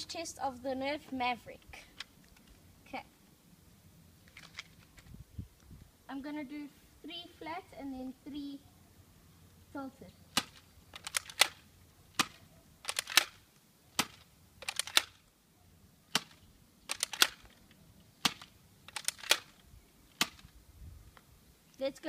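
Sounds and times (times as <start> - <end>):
toy blaster plastic clicks: 10.4 - 11.6, 12.2 - 13.4, 14.0 - 15.2, 16.2 - 17.6, 18.2 - 19.5.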